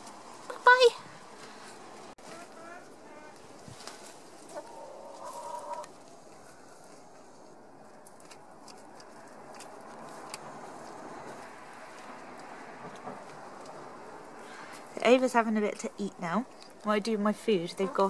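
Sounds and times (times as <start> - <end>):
hens clucking: 2.2 - 6.6, 17.5 - 18.0.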